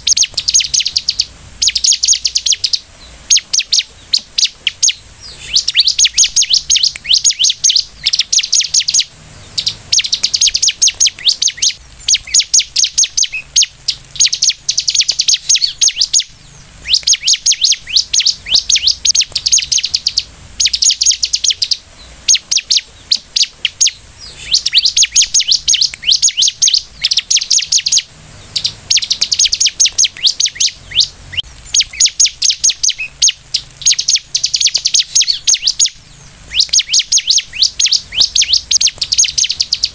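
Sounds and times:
bird chattering trills: 0:00.0 - 0:39.9.

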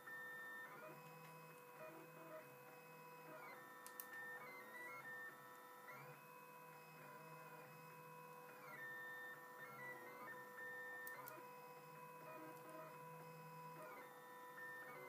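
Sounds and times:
faint click: 0:03.8 - 0:04.2.

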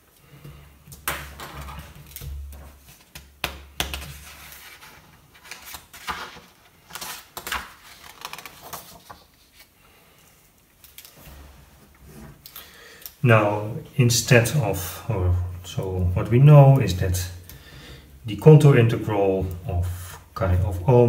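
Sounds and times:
paper rustling and sliding: 0:03.9 - 0:09.8.

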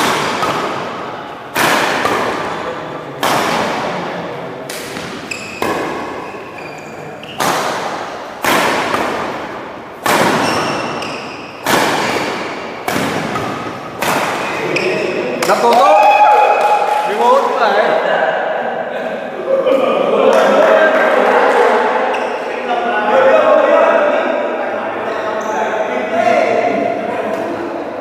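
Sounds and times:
rackets hitting shuttlecock: 0:00.0 - 0:15.8.

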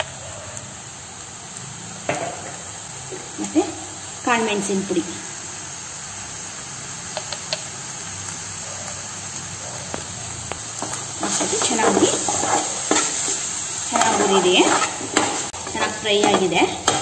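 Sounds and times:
meat sizzling in a pan: 0:00.0 - 0:17.0
spatula tapping: 0:07.2 - 0:07.6, 0:13.9 - 0:17.0
spatula scraping a pan: 0:10.8 - 0:17.0.

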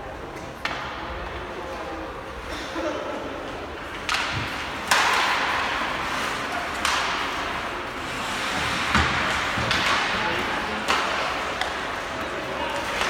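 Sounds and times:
hockey sticks clacking on puck: 0:00.2 - 0:01.5, 0:03.4 - 0:13.0
skate blades scraping ice: 0:04.5 - 0:13.0.

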